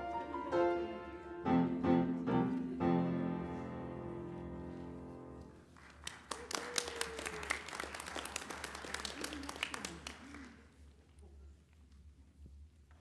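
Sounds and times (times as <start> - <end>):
congregation applauding: 5.7 - 10.8.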